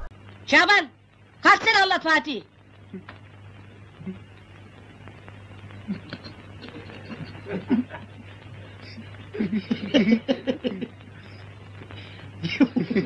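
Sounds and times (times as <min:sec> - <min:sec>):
steady low hum: 0:00.0 - 0:13.0
soft chuckling: 0:05.8 - 0:11.0, 0:12.4 - 0:13.0.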